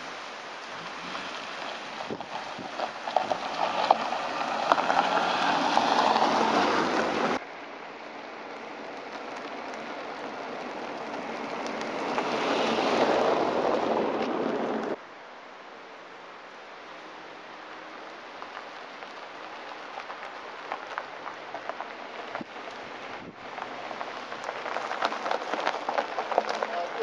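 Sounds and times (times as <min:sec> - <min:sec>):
car passing close: 0:00.0 - 0:07.4, 0:08.6 - 0:15.0
gravel crackle: 0:00.0 - 0:15.1, 0:15.9 - 0:27.0
car tyre and road noise: 0:00.0 - 0:27.0.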